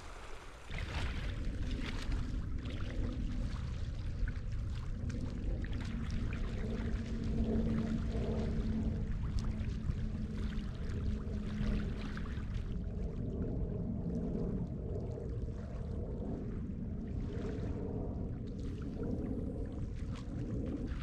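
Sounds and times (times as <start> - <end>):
faint steady drone: 0.0 - 21.0
small waves lapping and splashing: 0.0 - 21.0
wind rumble on microphone: 0.0 - 21.0.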